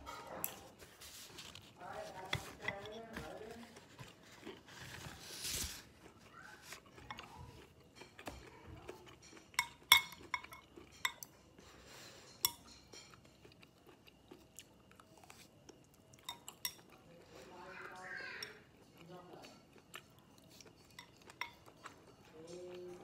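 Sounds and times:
close chewing: 1.4s - 11.8s, 12.9s - 18.0s, 18.6s - 23.0s
chopsticks clinking on ceramic plate: 9.1s - 11.5s, 12.2s - 13.6s, 16.2s - 17.0s, 20.7s - 23.0s.

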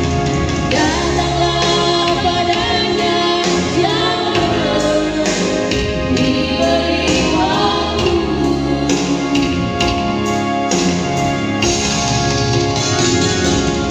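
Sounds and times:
backing track with bass and drums: 0.0s - 13.9s
woman singing through loudspeakers: 0.7s - 10.0s.

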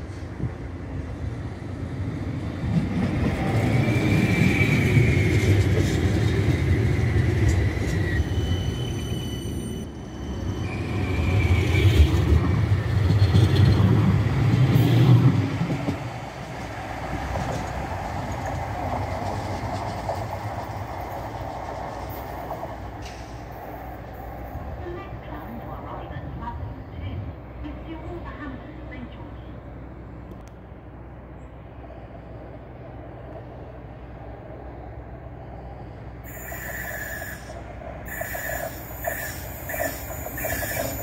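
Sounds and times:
tram wheels rumbling: 0.0s - 41.0s
high wheel squeal: 3.6s - 6.1s, 7.6s - 12.1s, 36.2s - 41.0s.

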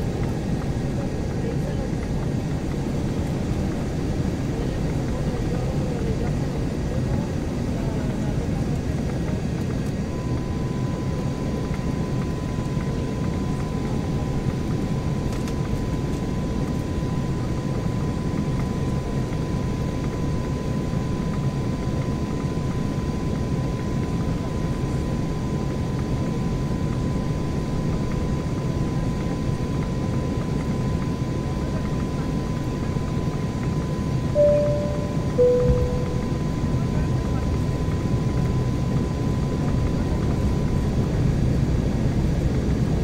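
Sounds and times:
airliner engine and airflow noise: 0.0s - 43.0s
thin steady whine: 31.9s - 41.0s.

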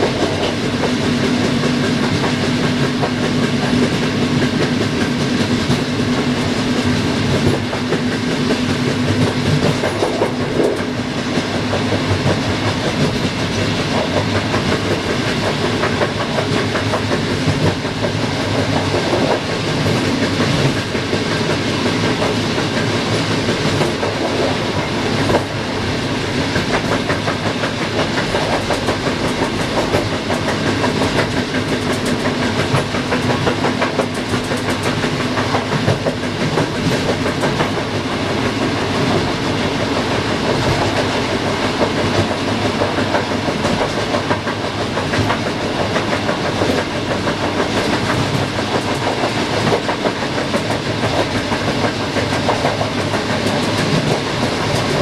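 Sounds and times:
clicking over rail joints: 0.0s - 55.0s
train wheels rumbling on rails: 0.0s - 55.0s.

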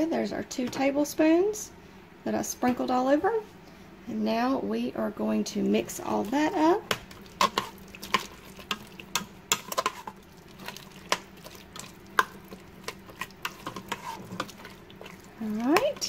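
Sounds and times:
spoon scraping thick chili: 6.2s - 16.0s.

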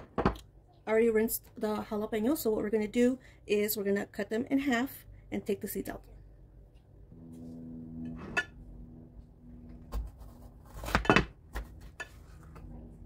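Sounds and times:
faint low hum: 0.5s - 10.9s.

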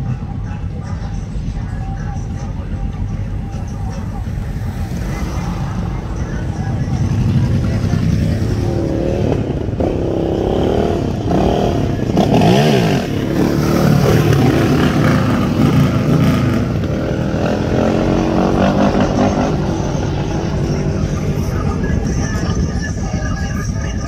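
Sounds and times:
quad engine revving: 3.9s - 22.8s.

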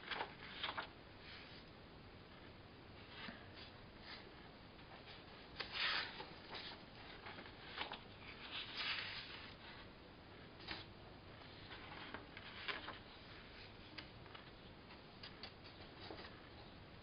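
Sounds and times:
paper rustling: 0.0s - 1.6s, 4.9s - 9.9s, 10.6s - 16.6s.

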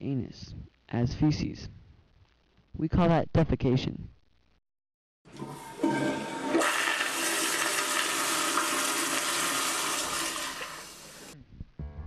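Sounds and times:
toilet flushing: 5.3s - 11.4s.

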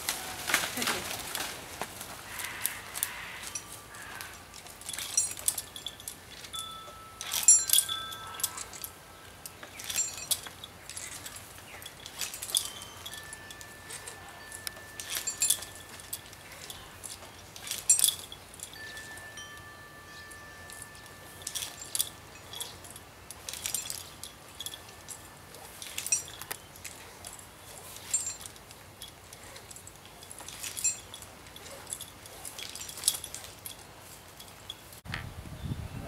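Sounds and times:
metal climbing gear clinking: 0.0s - 35.1s
metal wind chimes ringing: 2.3s - 35.0s.

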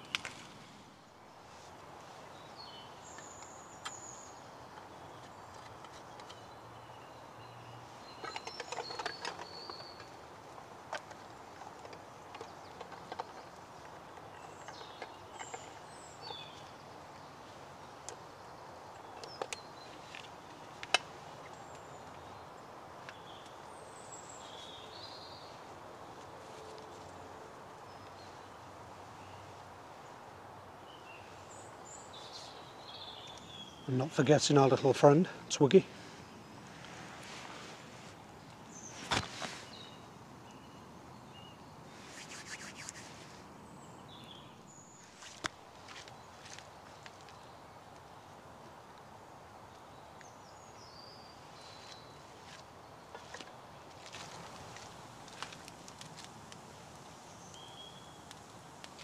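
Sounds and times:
twig fire crackling and popping: 0.0s - 0.8s, 54.0s - 59.0s
birds chirping: 2.2s - 48.8s, 49.8s - 59.0s.

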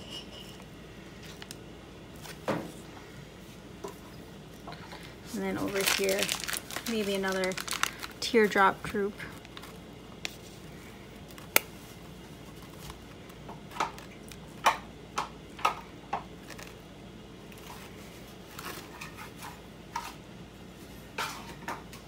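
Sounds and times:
plastic piping bag crinkling: 4.9s - 13.2s.

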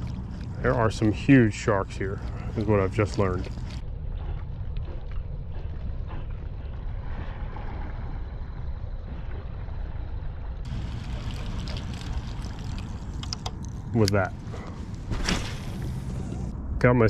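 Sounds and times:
faint water wash: 0.0s - 16.5s.

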